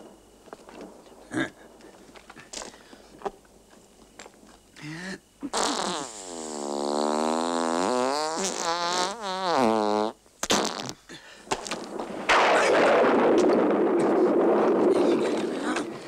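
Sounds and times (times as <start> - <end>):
long fart: 5.4 - 11.1.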